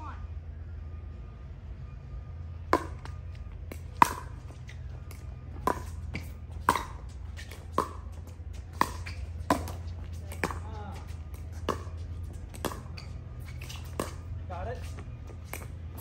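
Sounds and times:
steady low hum: 0.0 - 16.0
paddles hitting plastic ball: 2.7 - 14.3.

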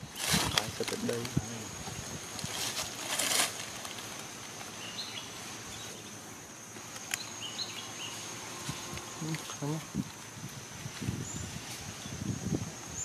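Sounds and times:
high insect drone: 0.0 - 13.0
brief rustle: 2.4 - 4.2
bird chirps: 7.1 - 8.3.

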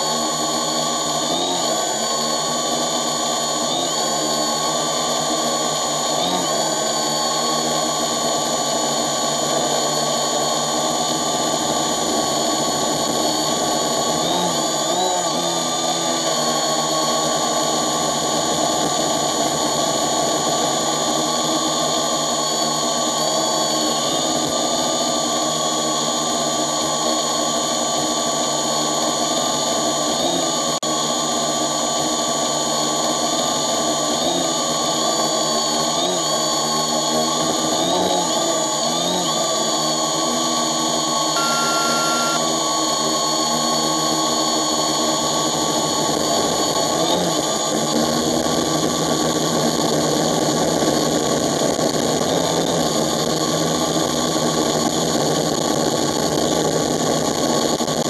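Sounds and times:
drone propellers whirring: 0.0 - 55.2.

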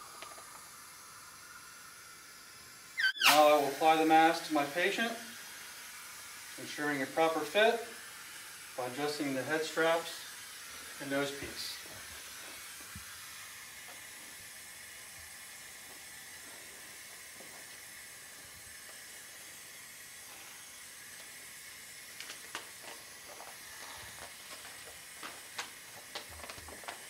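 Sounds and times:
hiss of flowing oxygen: 0.0 - 27.0.

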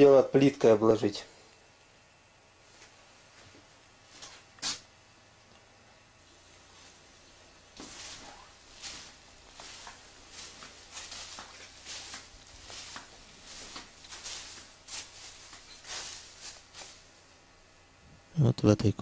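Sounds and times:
soft scuffing footsteps: 2.6 - 4.8, 6.6 - 17.2.

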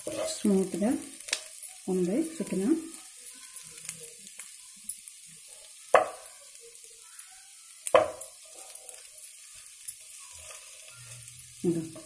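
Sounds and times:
spatula stirring in frying pan: 0.0 - 6.4, 7.0 - 11.4
faint sizzle: 0.0 - 12.0.

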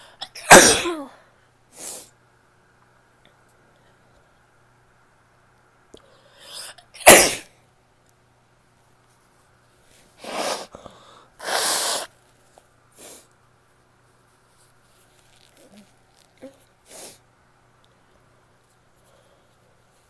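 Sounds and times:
woman sneezing: 0.3 - 1.2, 7.0 - 7.5
breathy bursts of noise: 9.9 - 12.2.

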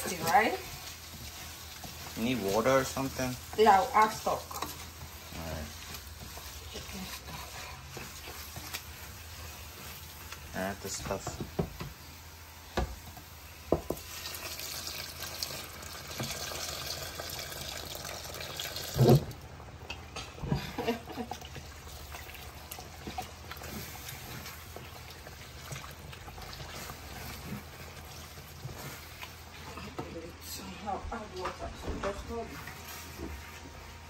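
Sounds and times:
rice being stirred: 0.0 - 12.2, 21.1 - 30.7
liquid pouring into a pan: 13.9 - 19.4.

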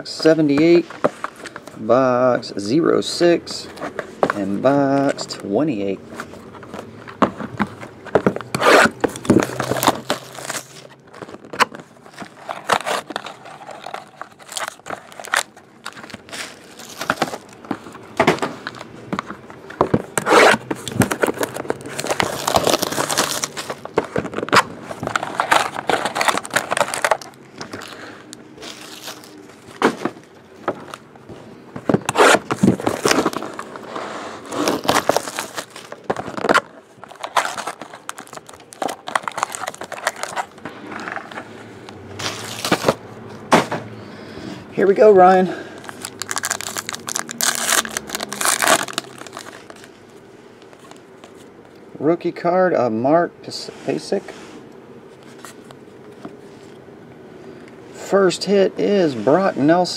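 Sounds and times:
plastic shrink-wrap tearing and crinkling: 8.6 - 17.6, 20.2 - 29.7, 32.1 - 40.6, 42.2 - 43.0, 45.8 - 49.9.

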